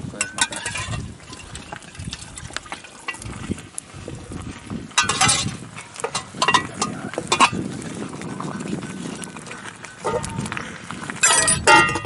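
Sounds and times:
steel cooking plates clinking: 0.1 - 3.2, 5.0 - 7.6, 11.2 - 12.0
spoon stirring a pot: 0.2 - 3.2.

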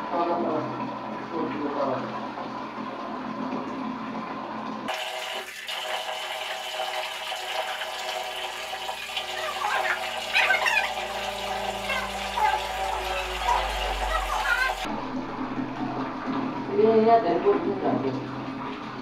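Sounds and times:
tap water splashing into bucket: 4.6 - 14.9.

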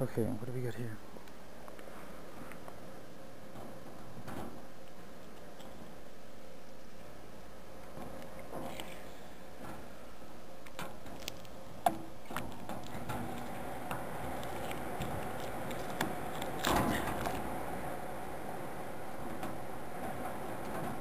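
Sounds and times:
hands handling object: 10.6 - 11.6, 14.4 - 17.4.

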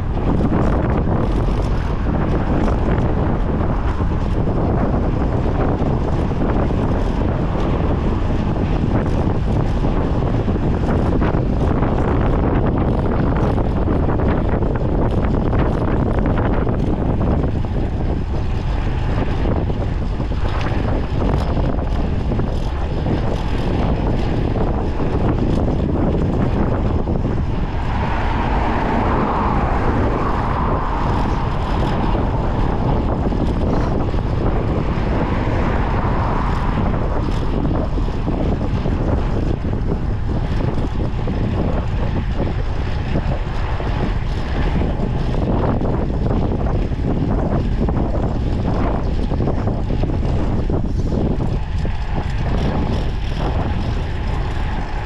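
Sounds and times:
wind buffeting microphone: 0.0 - 55.0
higher hum: 23.4 - 40.2.

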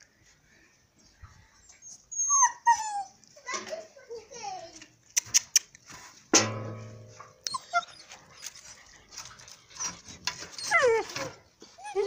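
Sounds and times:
puppy whining: 1.6 - 3.5, 7.4 - 12.0
puppies whimpering and yipping: 1.7 - 3.3, 7.5 - 12.0
metallic clang: 6.3 - 7.6.

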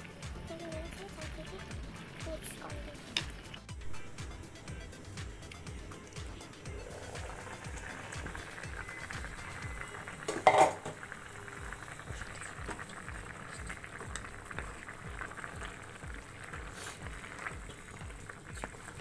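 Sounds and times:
curry bubbling in a pan: 6.7 - 19.0
utensil clattering against pan: 10.3 - 11.0.

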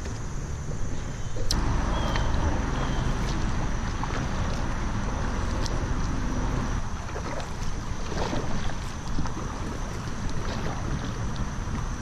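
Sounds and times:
paddle splashing water: 0.0 - 12.0
wind buffeting microphone: 0.0 - 12.0.

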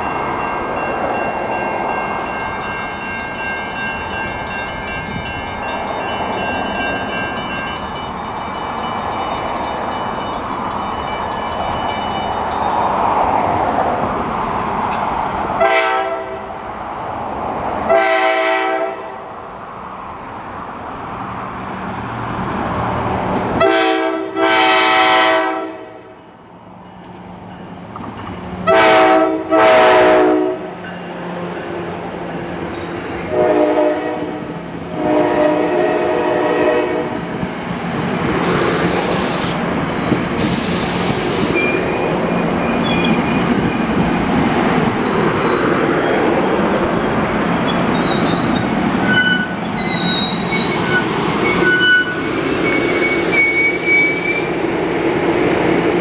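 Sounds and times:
train rumble: 0.0 - 25.9, 26.7 - 56.0
train air horn blasts: 15.6 - 16.5, 17.9 - 19.2, 23.6 - 26.1, 28.6 - 30.7, 33.2 - 37.2
train wheel squeals: 32.6 - 33.3, 38.0 - 54.6.

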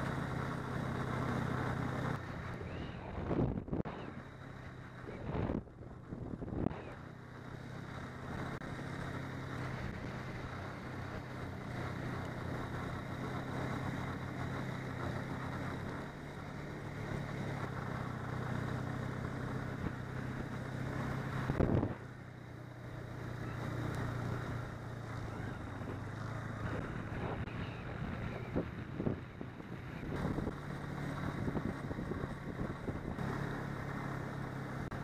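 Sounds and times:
snowmobile engine running: 0.0 - 35.0
wind noise: 2.6 - 4.2, 5.0 - 7.0, 21.4 - 22.0, 26.6 - 33.3.

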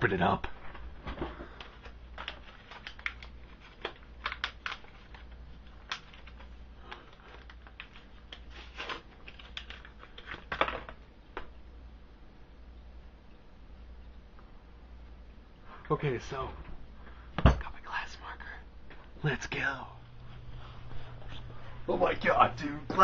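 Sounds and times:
packaging being torn open: 2.2 - 10.9.

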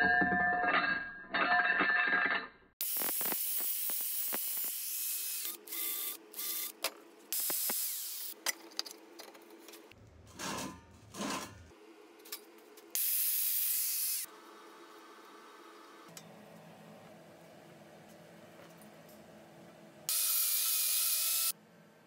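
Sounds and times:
angle grinder cutting metal: 2.8 - 6.8, 7.4 - 8.4, 13.0 - 14.3, 20.1 - 21.5.

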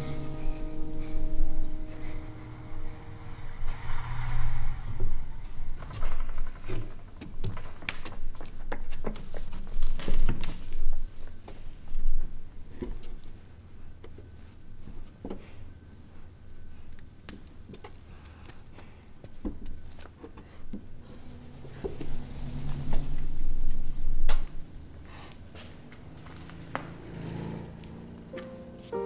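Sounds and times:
low droning tone: 0.0 - 6.4, 20.9 - 27.8
footsteps on wooden stairs: 24.5 - 27.2.

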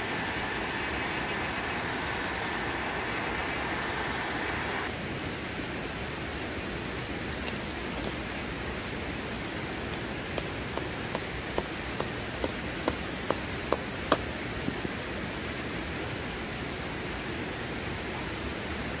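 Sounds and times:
creek water rushing: 0.0 - 19.0
rock striking tent stake: 9.9 - 14.3.

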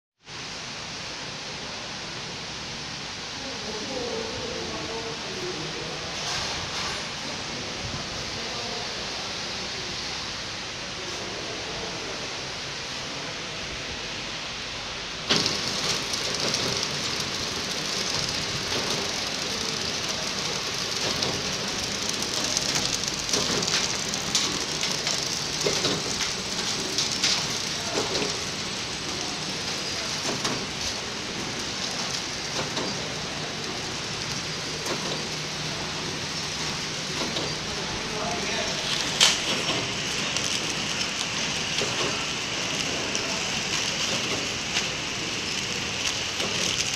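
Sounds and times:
packing machine clatter and hiss: 5.9 - 9.2, 13.9 - 46.9
machine clicks: 15.2 - 35.5, 39.1 - 44.9, 45.5 - 46.9.

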